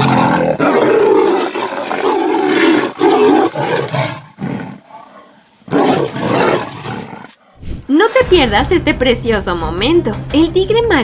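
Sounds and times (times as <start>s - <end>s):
tigers roaring and growling: 0.0s - 8.1s.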